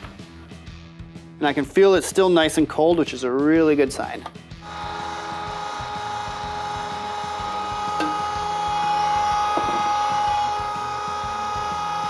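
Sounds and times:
electric meat grinder whining: 0:04.6 - 0:12.0.

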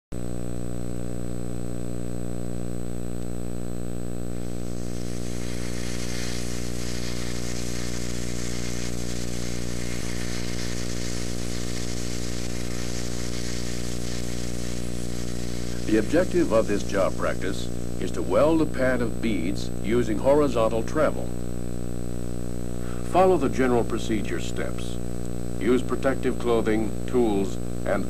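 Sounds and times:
loud low hum: 0:00.2 - 0:24.1
hiss: 0:04.4 - 0:18.2.

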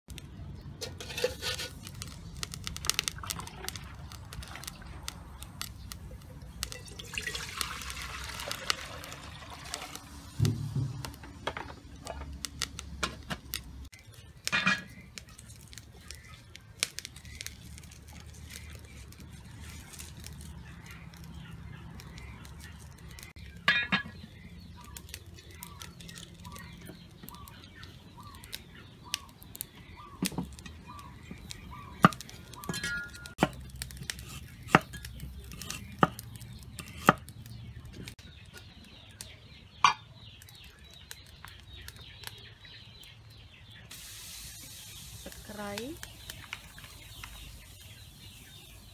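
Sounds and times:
water pouring into plastic bowl: 0:06.8 - 0:10.3.

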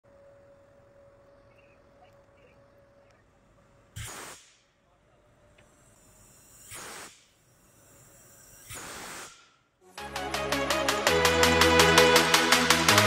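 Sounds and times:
steam hissing from valve: 0:04.0 - 0:04.7, 0:05.8 - 0:09.6.

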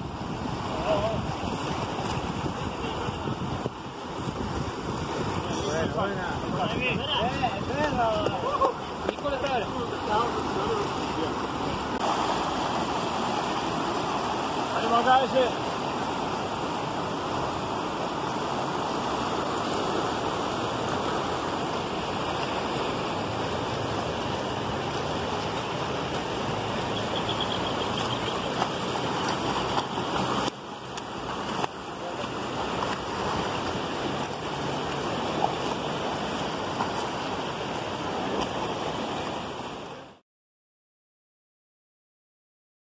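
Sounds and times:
water rushing through rapids: 0:00.0 - 0:40.2.

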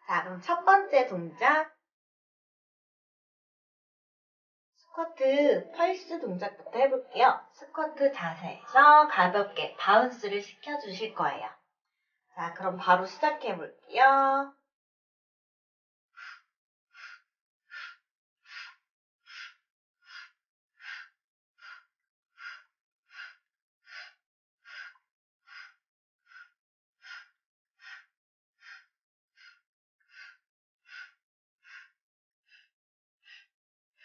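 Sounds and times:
woman breathing: 0:16.2 - 0:34.0.

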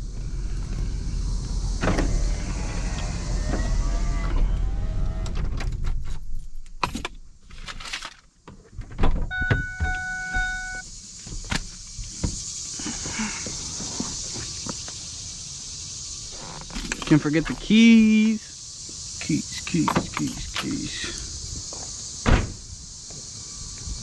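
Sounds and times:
steady hiss: 0:00.0 - 0:04.8, 0:10.2 - 0:24.0
engine rumble: 0:00.0 - 0:06.7
electronic warning chime: 0:09.3 - 0:10.8.

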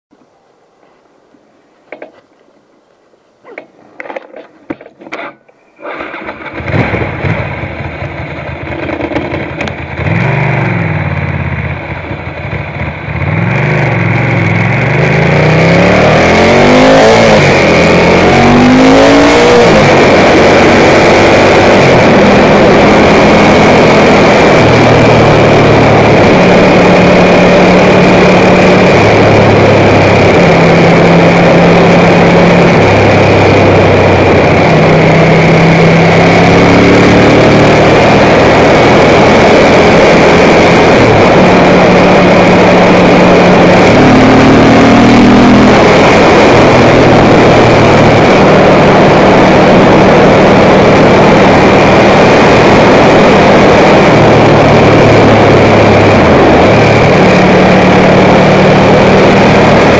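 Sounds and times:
motorcycle engine revving: 0:05.0 - 0:59.9
wind rush on microphone: 0:17.4 - 0:59.9.

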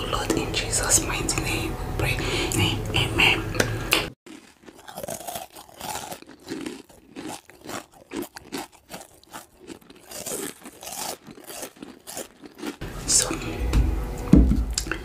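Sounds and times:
crisp crunching: 0:04.3 - 0:12.8
soft chewing: 0:04.3 - 0:12.8.

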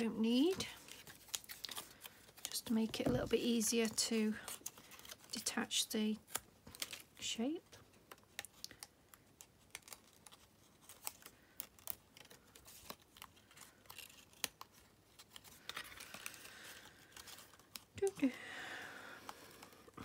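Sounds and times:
paper clicks and tearing: 0:08.0 - 0:18.2
paper rustling: 0:08.1 - 0:18.1.

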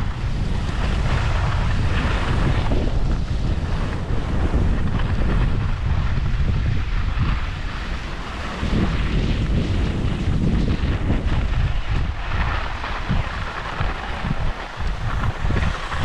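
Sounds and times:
skis sliding over snow: 0:00.0 - 0:16.0
wind buffeting microphone: 0:00.0 - 0:16.0.

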